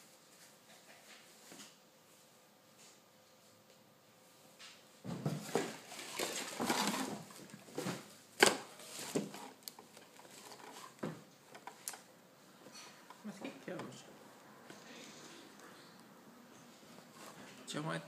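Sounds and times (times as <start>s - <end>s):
rustling and handling: 5.0s - 14.1s.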